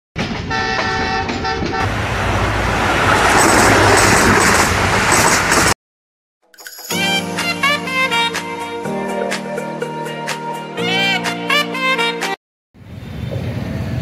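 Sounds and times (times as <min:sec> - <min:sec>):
loud rushing noise: 0:01.8 - 0:05.8.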